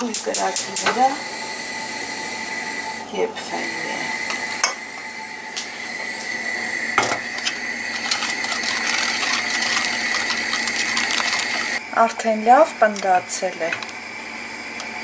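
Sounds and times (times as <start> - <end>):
whisk knocking pot: 7.0 - 11.8
whisk scraping a metal pot: 7.0 - 11.8.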